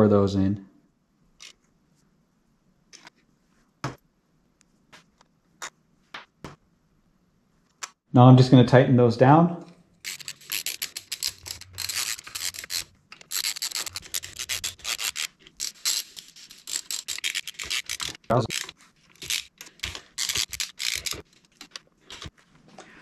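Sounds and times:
ratchet wrench rasping clicks: 10.0s - 21.2s.

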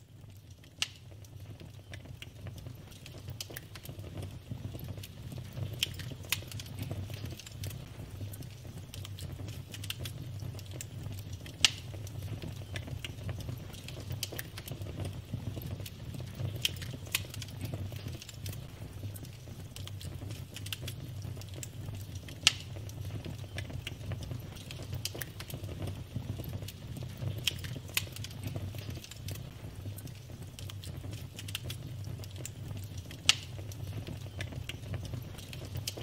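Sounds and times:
wood fire crackling: 0.0s - 36.0s
sharp pops of burning logs: 0.5s - 36.0s.

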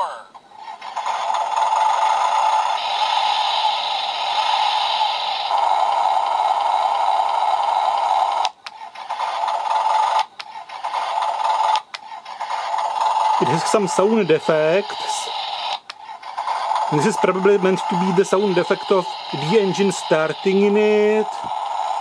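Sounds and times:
toy electronic engine sound: 0.0s - 22.0s.

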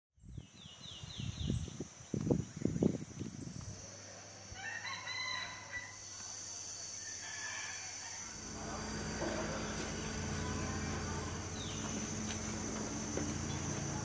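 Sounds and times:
steady high-pitched whine: 1.6s - 14.0s
rooster crowing: 4.5s - 6.0s, 7.0s - 11.7s
loud low rumbles: 8.3s - 14.0s.

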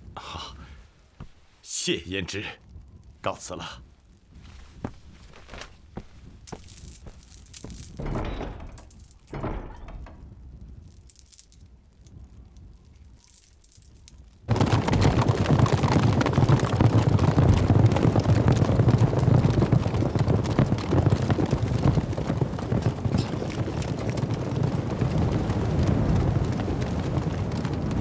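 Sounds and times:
horses galloping: 4.1s - 9.5s, 12.2s - 28.0s.

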